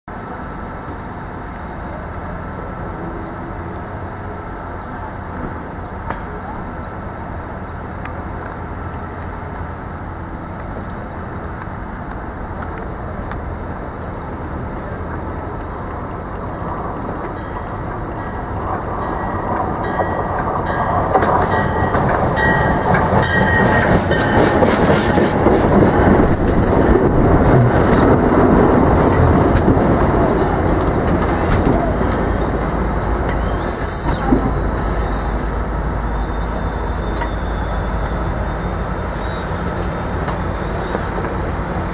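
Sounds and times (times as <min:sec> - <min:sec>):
passenger train rolling past: 0:00.1 - 0:41.9
wheels clattering on rail: 0:08.0 - 0:38.2.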